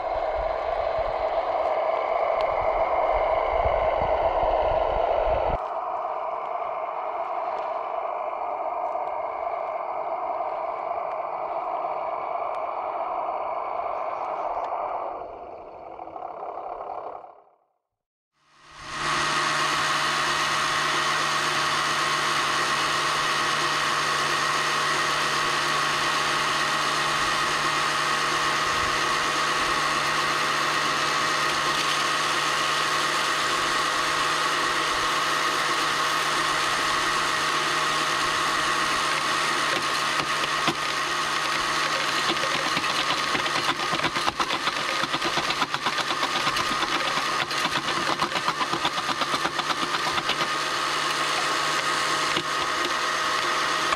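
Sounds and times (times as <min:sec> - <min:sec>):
excavator working: 0:00.0 - 0:17.4, 0:18.6 - 0:53.9
screening plant hum and whine: 0:00.0 - 0:17.8, 0:18.4 - 0:53.9
stones rattling over conveyor: 0:39.7 - 0:50.6.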